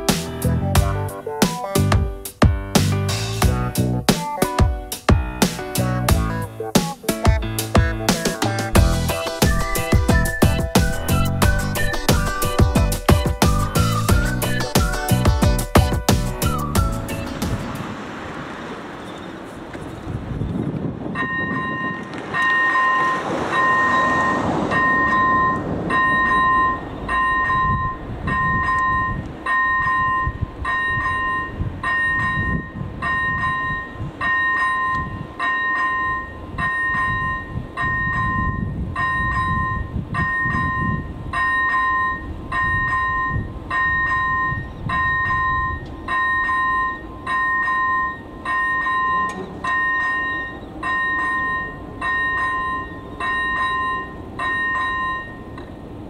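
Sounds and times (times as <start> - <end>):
road traffic rumble: 0.0 - 56.0
level crossing warning bell: 21.1 - 56.0.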